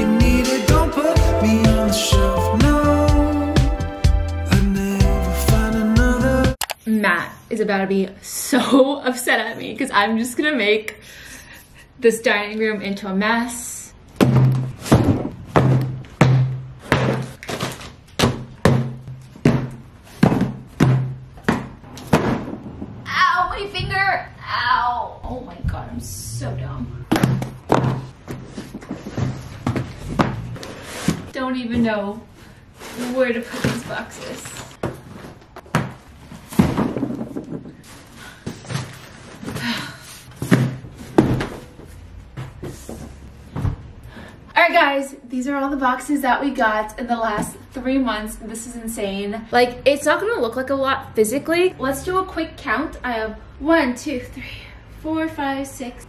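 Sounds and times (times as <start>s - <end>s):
cardboard boxes knocking: 14.2s - 22.8s, 27.1s - 31.9s, 34.8s - 37.8s, 40.4s - 42.8s.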